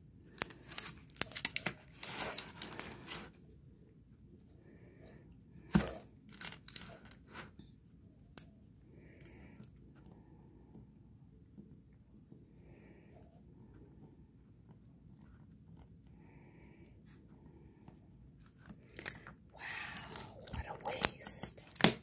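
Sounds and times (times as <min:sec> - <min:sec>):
wax wrapping crinkling and tearing: 0:00.3 - 0:03.2, 0:06.3 - 0:07.2, 0:18.6 - 0:22.0.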